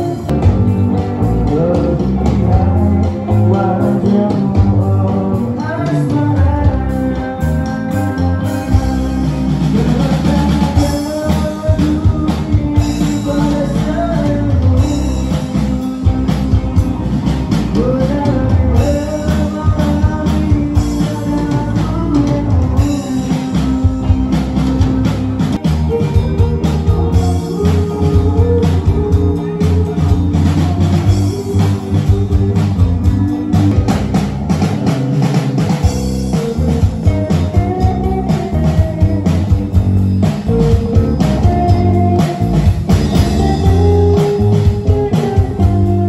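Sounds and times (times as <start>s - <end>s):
person singing: 0.0s - 34.3s, 35.8s - 46.0s
drum kit: 0.0s - 46.0s
electric bass: 0.0s - 46.0s
electric guitar: 0.0s - 46.0s.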